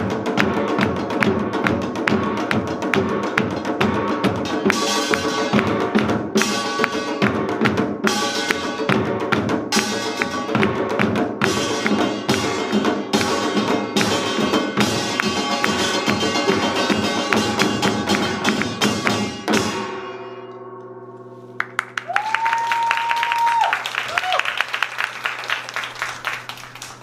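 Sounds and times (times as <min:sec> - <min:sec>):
percussion ensemble playing fast rhythm: 0:00.0 - 0:20.1
people clapping: 0:10.1 - 0:10.4, 0:11.0 - 0:12.1, 0:12.7 - 0:14.3, 0:15.0 - 0:19.2, 0:21.6 - 0:27.0.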